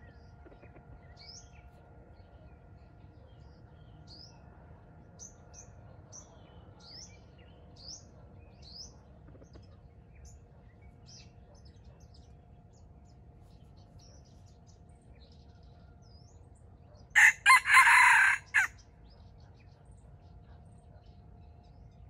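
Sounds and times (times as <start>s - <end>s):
birds chirping: 5.2s - 19.2s.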